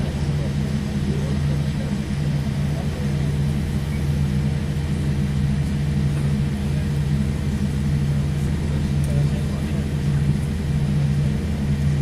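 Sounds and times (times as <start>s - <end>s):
aircraft cabin engine rumble: 0.0s - 12.0s.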